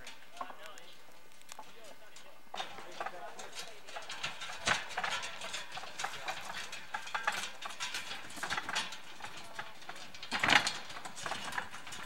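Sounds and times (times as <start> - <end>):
wooden handcart clattering: 2.5 - 12.0.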